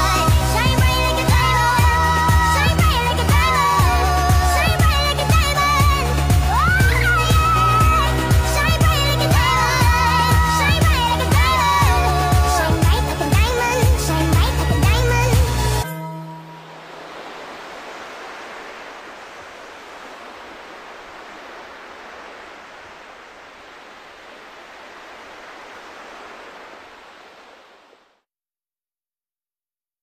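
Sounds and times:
steady hiss: 16.6s - 28.0s.

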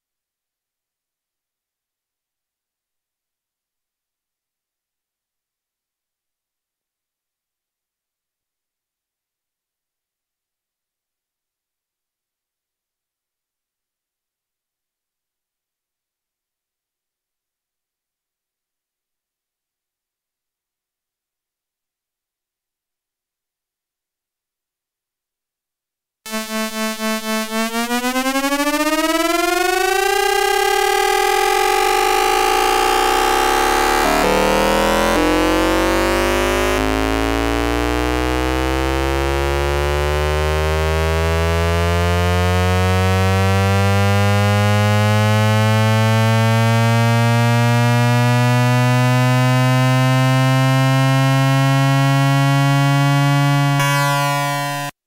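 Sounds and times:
added steady tone: 26.3s - 38.8s.

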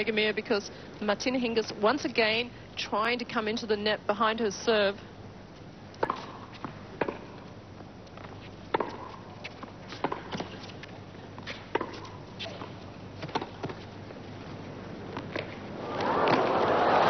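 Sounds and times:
tennis racket hitting ball: 6.0s - 7.3s, 8.7s - 9.2s, 10.0s - 10.5s, 11.5s - 13.8s
tennis ball bouncing: 6.0s - 7.5s, 8.2s - 13.8s.

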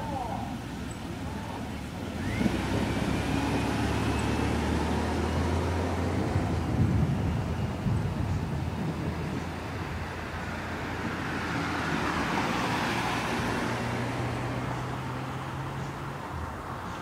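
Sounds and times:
car driving past: 2.2s - 16.2s.

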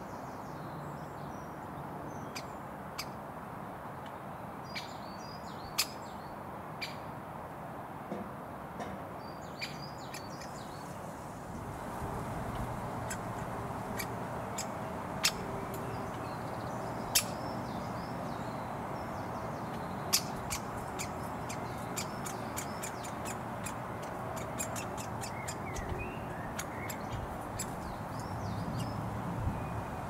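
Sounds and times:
road traffic hum: 0.0s - 30.0s
bird clicks and chirps: 20.0s - 28.9s.

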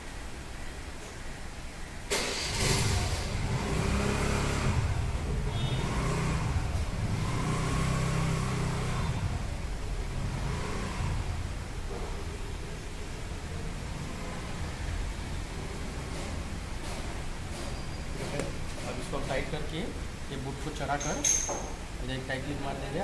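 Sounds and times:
engine starting and running: 2.1s - 20.4s.

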